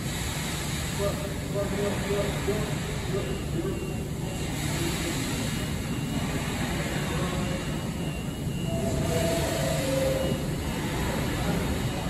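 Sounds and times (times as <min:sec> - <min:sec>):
faint whine: 0:00.0 - 0:12.0
subway train rumbling: 0:02.7 - 0:12.0.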